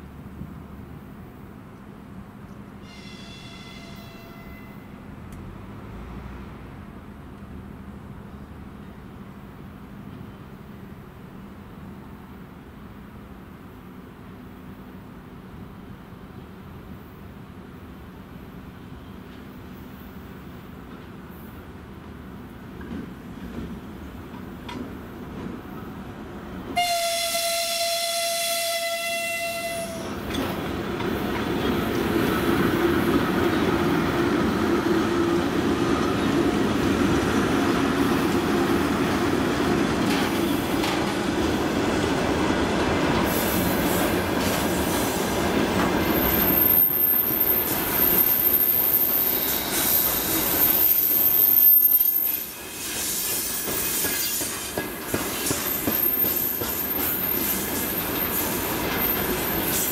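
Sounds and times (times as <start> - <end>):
freight train rumbling past: 0.0 - 59.9
high wheel squeal: 2.8 - 5.0, 46.1 - 59.9
locomotive horn blast: 2.8 - 5.0, 26.8 - 30.2.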